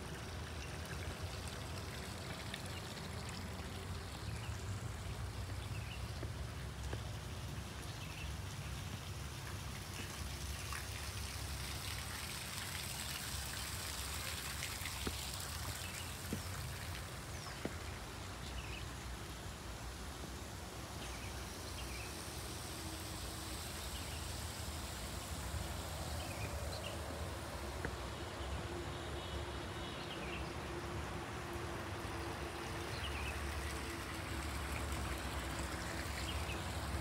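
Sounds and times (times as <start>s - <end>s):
high hiss: 20.8s - 27.6s.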